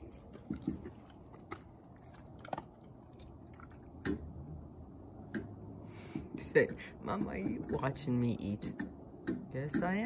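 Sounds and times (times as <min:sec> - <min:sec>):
dog crunching kibble: 0:00.0 - 0:04.0.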